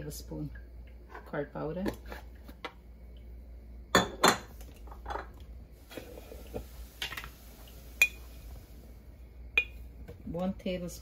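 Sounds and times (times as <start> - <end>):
spoon and glass jars clinking: 3.9 - 5.4, 9.6 - 9.8.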